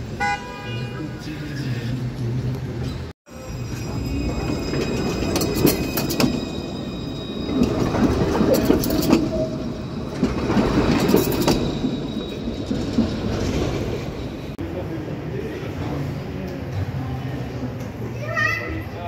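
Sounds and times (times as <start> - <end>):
tram rumbling past: 1.1 - 18.1
wheels clicking on rails: 3.7 - 14.6.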